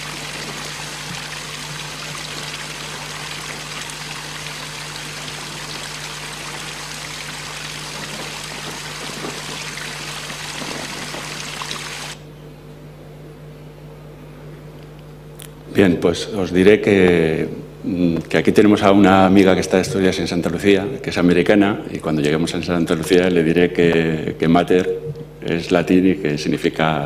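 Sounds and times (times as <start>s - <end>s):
rushing water: 0.0s - 12.2s
low steady hum: 0.0s - 27.0s.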